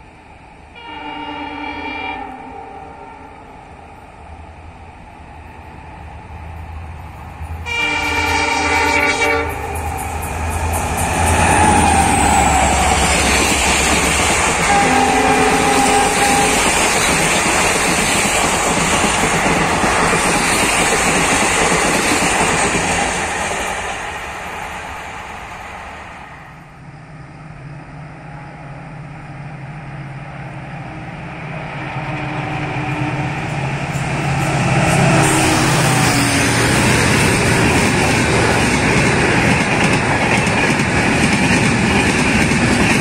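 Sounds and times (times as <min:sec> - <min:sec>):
train rumbling and clattering past: 0:00.0 - 0:43.0
locomotive horn blast: 0:00.8 - 0:03.5, 0:07.7 - 0:09.8, 0:14.6 - 0:16.8, 0:35.0 - 0:36.6.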